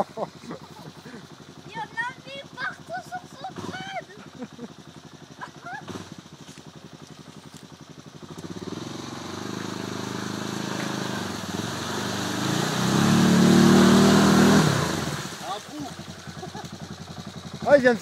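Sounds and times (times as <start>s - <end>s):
quad engine idling and revving: 0.0s - 18.0s
mud and water churning and splashing: 4.9s - 18.0s.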